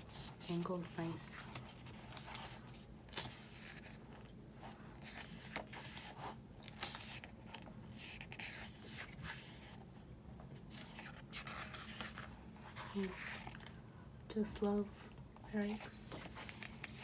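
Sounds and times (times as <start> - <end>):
paper rustling: 0.0 - 9.8, 10.6 - 13.8, 15.5 - 17.0.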